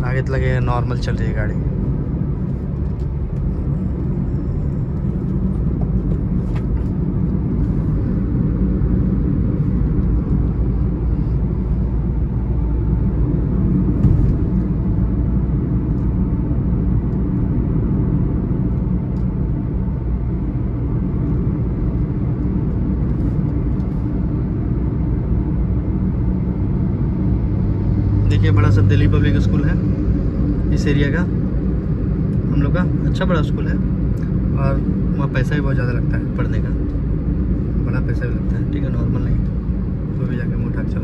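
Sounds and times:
car road and engine rumble: 0.0s - 41.0s
brief thump: 13.9s - 14.6s.

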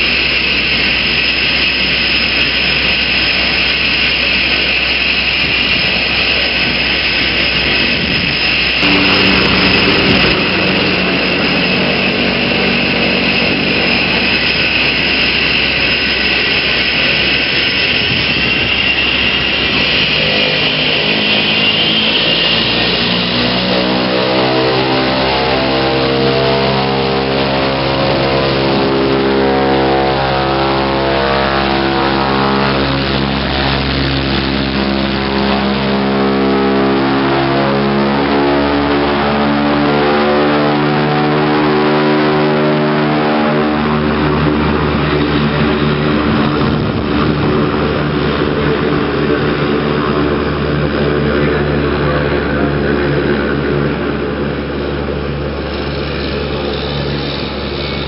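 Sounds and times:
turboprop engine whine: 0.0s - 58.0s.

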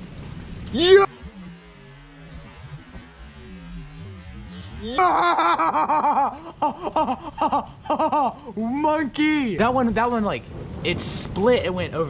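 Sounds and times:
faint low rumble: 0.0s - 12.0s
man laughing and whooping: 4.8s - 9.1s.

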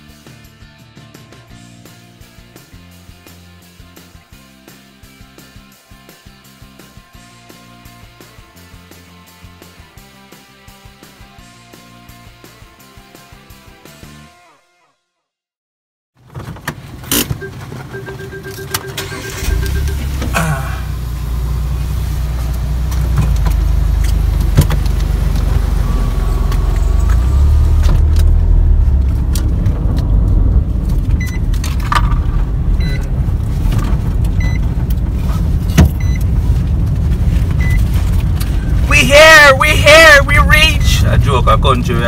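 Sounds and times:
car engine and road rumble: 16.2s - 42.0s
rapid electronic beeps: 17.9s - 20.2s.

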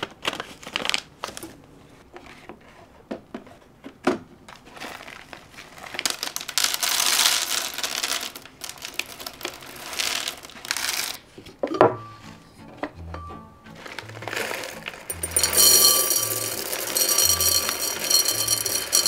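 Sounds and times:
plastic bag crinkling: 4.6s - 11.2s, 13.8s - 15.6s.

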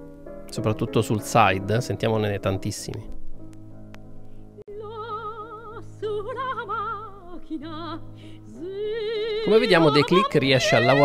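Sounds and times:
operatic voice singing: 9.1s - 11.0s.

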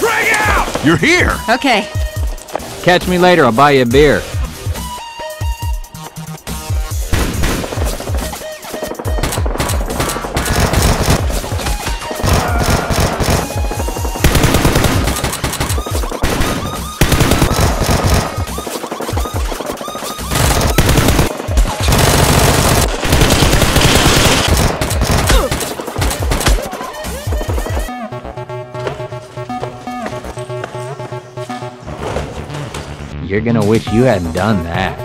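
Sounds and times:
background music: 0.0s - 35.0s
machine-gun fire bursts: 7.0s - 26.7s.

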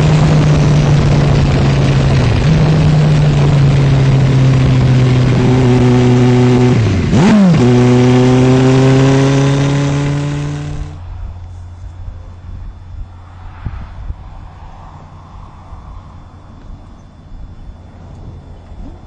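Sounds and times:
motorcycle engine pulling hard: 0.0s - 11.0s
heavy wind noise: 0.0s - 19.0s.

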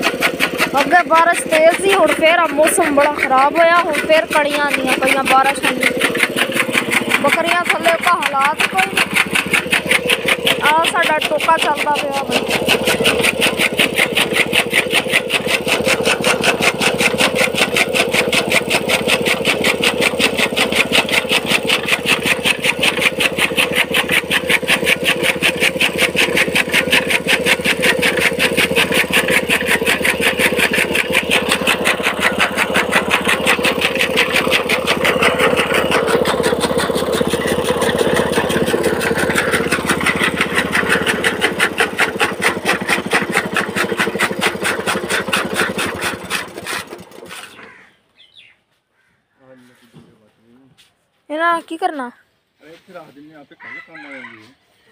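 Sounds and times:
chaff cutter blades chopping: 0.0s - 47.9s
small petrol engine running: 0.0s - 48.4s.

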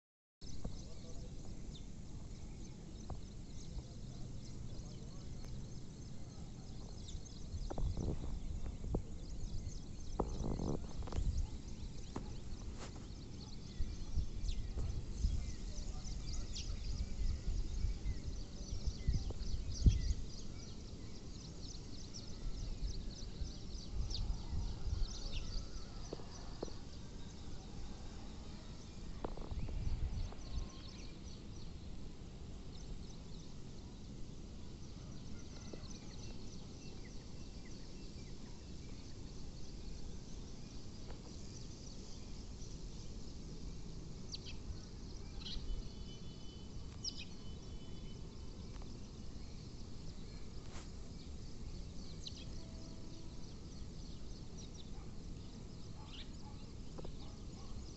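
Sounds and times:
wind rumble on microphone: 0.5s - 45.9s.

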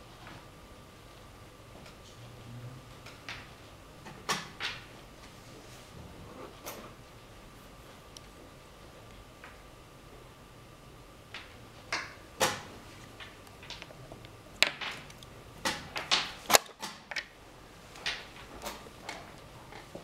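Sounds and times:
chess pieces knocking on board: 14.6s - 17.3s.

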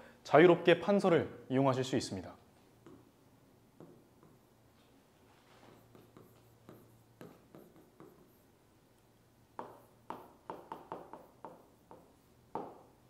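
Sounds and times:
stylus tapping on glass: 9.6s - 12.9s.

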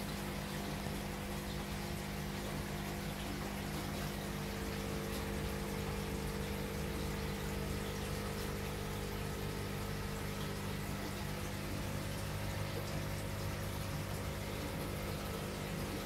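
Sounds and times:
steady low hum: 0.0s - 16.0s
water running through filter: 0.0s - 16.0s.

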